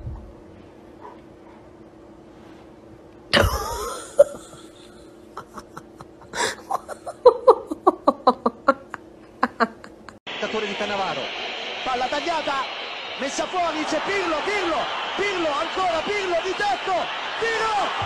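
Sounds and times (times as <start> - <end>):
person laughing: 3.3 - 10.2.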